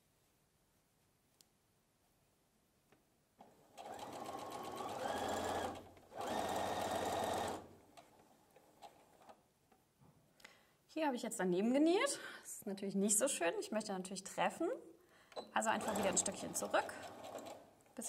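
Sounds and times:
sewing machine stitching: 3.4 - 7.7, 15.6 - 17.7.

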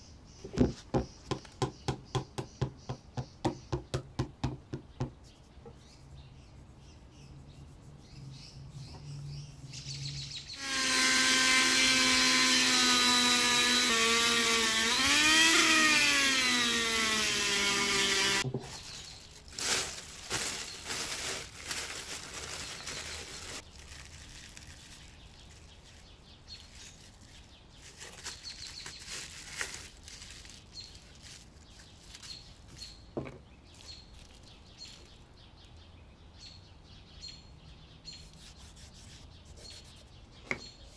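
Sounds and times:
power tool motor whine: 10.6 - 18.4
plastic film crinkling: 18.4 - 33.0, 33.7 - 35.3.

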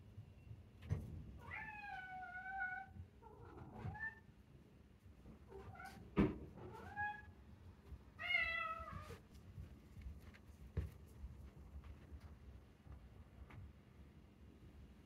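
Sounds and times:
cat meowing: 1.4 - 3.0, 8.2 - 9.2.

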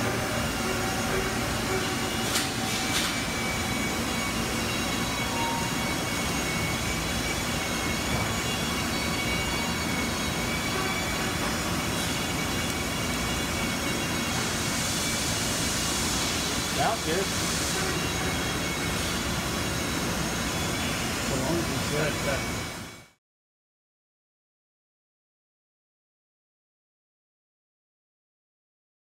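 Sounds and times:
milling machine hum and whine: 0.0 - 23.2.

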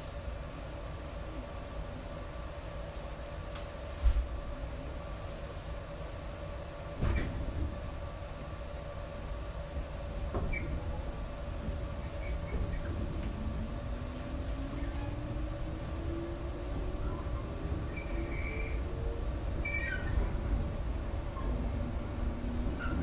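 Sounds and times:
train wheels rumbling on rails: 6.0 - 23.0.

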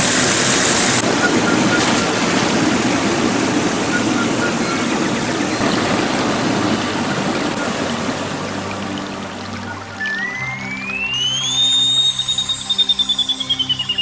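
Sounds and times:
generator spinning fast: 0.0 - 14.0
rushing water: 0.0 - 14.0.

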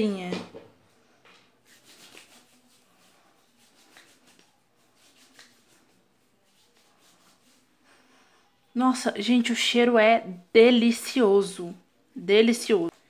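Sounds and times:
hands rubbing in cream: 1.6 - 7.8.

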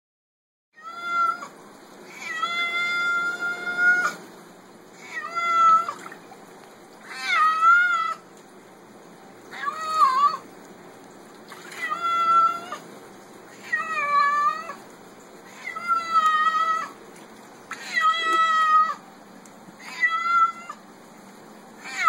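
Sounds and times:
cat meowing: 0.8 - 1.5, 2.1 - 4.2, 5.0 - 6.0, 7.0 - 8.2, 9.5 - 10.4, 11.7 - 12.8, 13.5 - 14.8, 15.5 - 17.0, 17.7 - 19.0, 19.8 - 20.8, 21.8 - 22.0.

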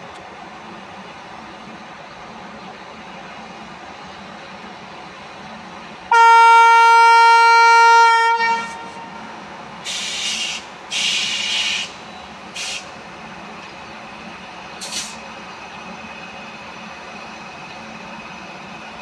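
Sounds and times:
locomotive air horn blast: 6.1 - 9.1
air hissing: 9.8 - 12.9.

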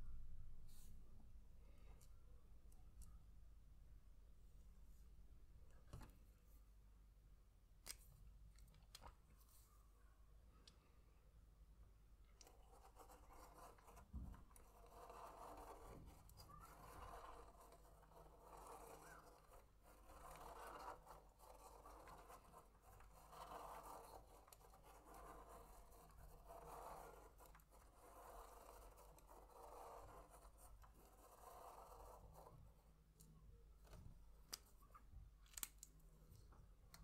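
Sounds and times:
pen scratching on paper: 12.4 - 32.9.

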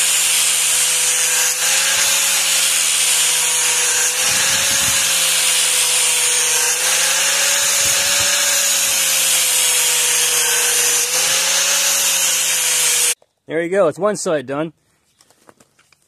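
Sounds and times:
angle grinder grinding steel: 0.0 - 13.2.

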